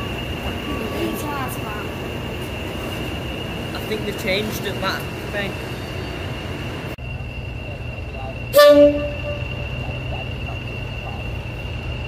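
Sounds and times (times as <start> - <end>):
high whistle: 7.1 - 12.0
two-tone locomotive horn: 8.4 - 10.1.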